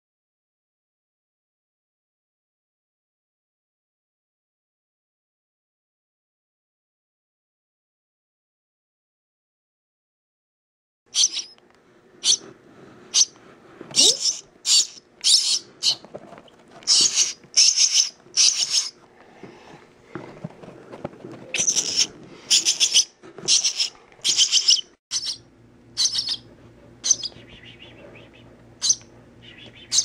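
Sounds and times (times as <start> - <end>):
nestling bird begging chirps: 11.1 - 11.6, 12.2 - 12.4, 13.2 - 13.4, 14.0 - 16.0, 16.9 - 19.0, 21.5 - 25.4, 26.0 - 30.0.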